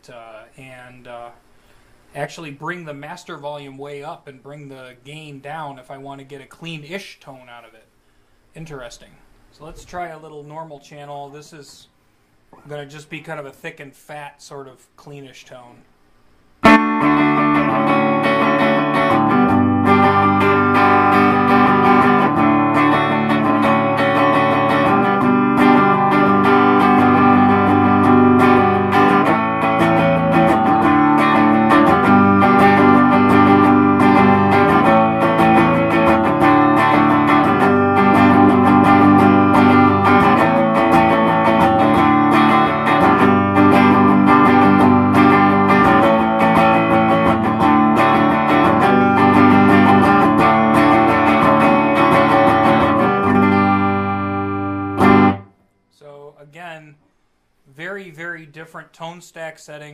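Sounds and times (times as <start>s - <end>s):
clean electric guitar playing: 16.6s - 55.5s.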